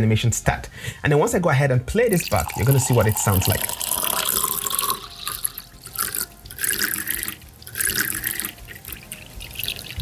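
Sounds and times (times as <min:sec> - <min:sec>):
water pouring into a cup: 0:02.1 - 0:10.0.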